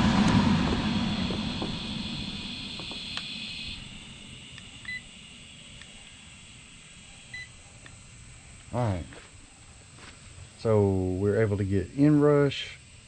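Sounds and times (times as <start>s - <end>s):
electric fan motor hum: 0.0s - 13.0s.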